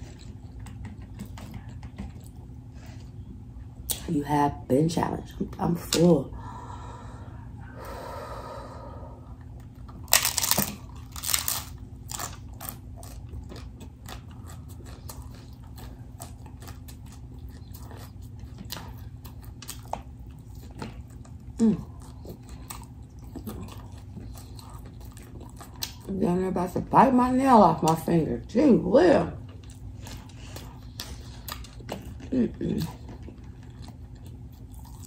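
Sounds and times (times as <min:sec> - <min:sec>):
taco shell crunching: 0:09.6 - 0:26.1, 0:29.6 - 0:35.0.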